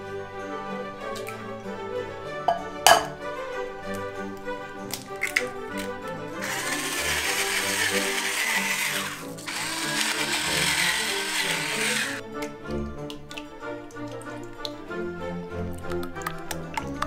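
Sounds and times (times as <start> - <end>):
background music: 0.0 - 17.0
spice grinder grinding: 4.9 - 12.2.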